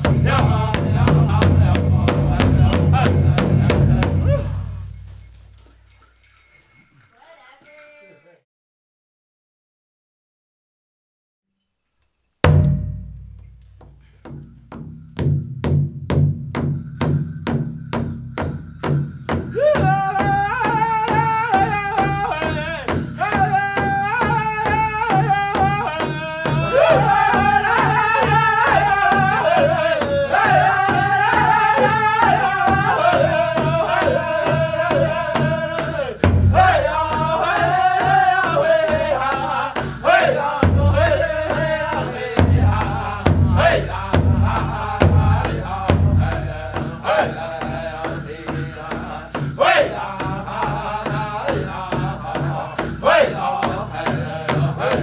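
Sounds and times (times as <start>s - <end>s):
high-pitched group singing: 0.0s - 4.6s, 19.5s - 55.0s
large drum steady beat: 0.0s - 5.5s, 12.5s - 55.0s.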